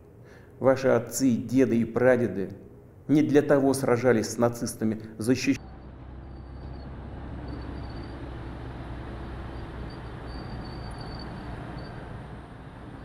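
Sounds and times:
low engine rumble: 5.5 - 13.0
faint high squeaks: 5.6 - 8.3, 9.5 - 12.2.

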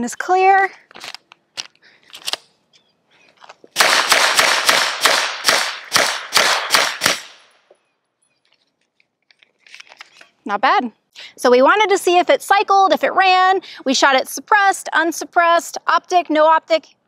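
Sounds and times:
suppressed pistol shots: 3.8 - 7.5.

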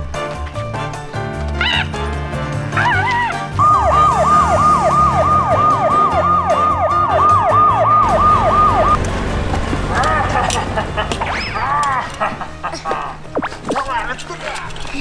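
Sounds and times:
electronic police siren wail: 2.8 - 9.0.

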